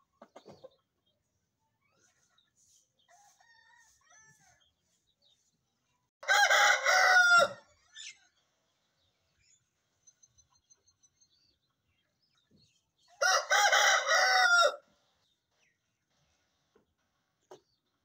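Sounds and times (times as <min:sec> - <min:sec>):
rooster crowing: 0:06.2 - 0:07.6, 0:13.2 - 0:14.8
faint bird chirps: 0:07.7 - 0:13.2.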